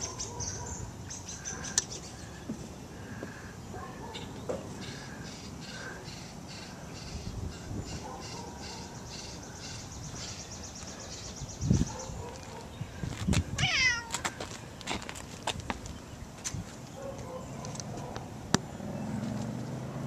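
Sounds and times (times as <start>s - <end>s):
cat meowing: 13.6s - 14.2s.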